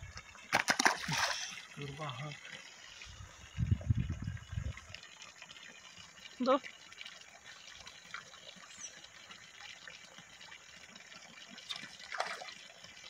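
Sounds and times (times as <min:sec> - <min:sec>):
fish splashing water: 0:00.4 - 0:01.7, 0:11.1 - 0:13.0.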